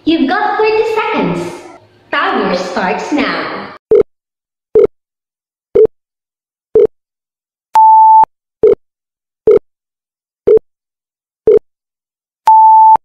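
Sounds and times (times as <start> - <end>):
longer higher-pitched beep: 7.8 - 8.8, 12.5 - 13.0
short electronic beeps: 7.8 - 8.8, 12.5 - 13.0.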